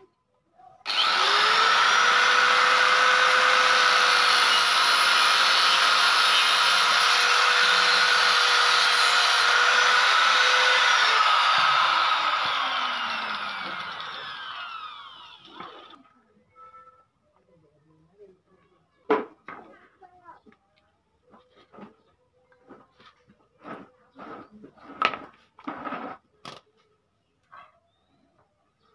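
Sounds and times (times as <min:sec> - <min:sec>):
angle grinder cutting metal: 0:00.9 - 0:16.0.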